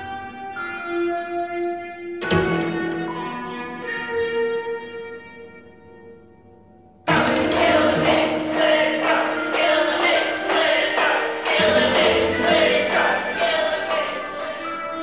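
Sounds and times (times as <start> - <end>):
driving beat: 7.1 - 14.6
choir singing: 7.1 - 15.0.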